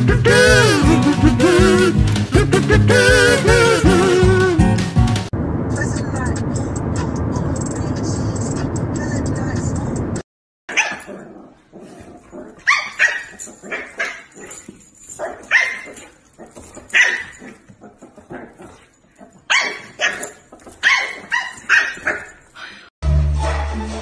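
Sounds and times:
dog barking and yipping: 10.7s - 22.8s.

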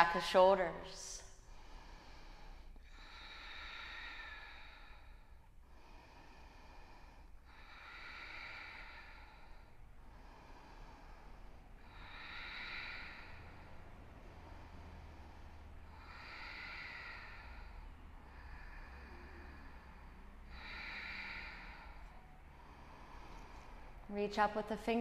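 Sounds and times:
person breathing slowly: 1.2s - 24.6s.

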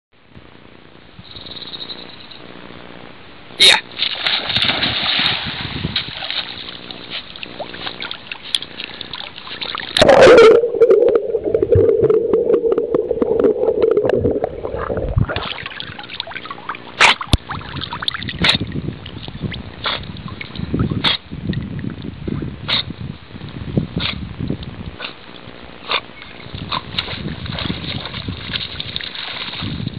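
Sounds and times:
water splashing: 4.1s - 18.4s, 27.2s - 29.8s
muffled underwater hum: 10.0s - 17.0s.

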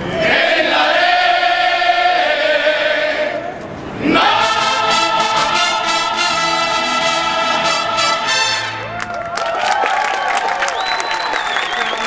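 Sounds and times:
voices holding a long note: 4.0s - 9.1s
mariachi band playing: 4.1s - 9.2s.

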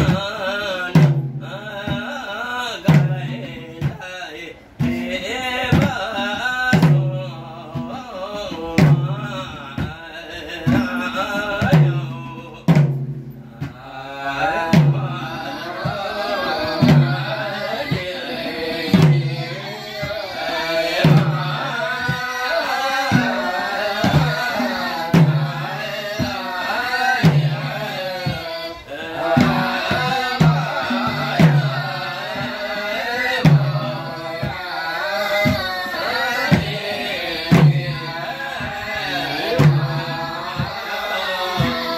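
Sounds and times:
barrel drums: 0.0s - 41.9s
men chanting: 0.0s - 41.9s.

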